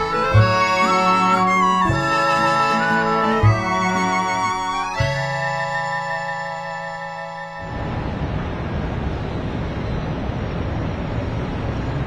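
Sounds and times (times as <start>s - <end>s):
sustained film music chord: 0.0s - 8.5s
steady rushing noise: 6.2s - 12.0s.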